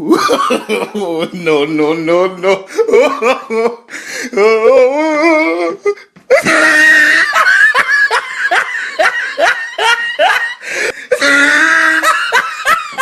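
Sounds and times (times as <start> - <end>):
high-pitched laughter: 6.3 - 13.0.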